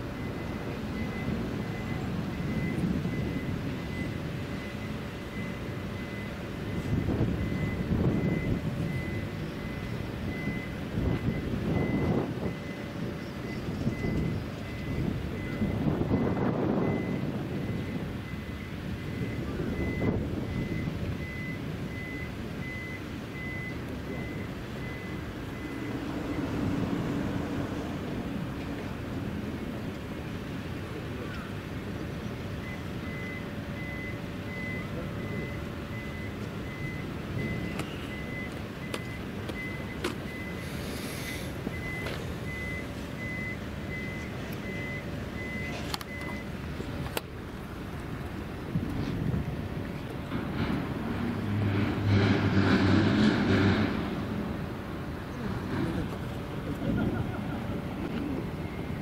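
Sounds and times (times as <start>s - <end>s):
reversing alarm beeping: 0.0s - 27.3s, 32.2s - 46.8s, 56.9s - 59.0s.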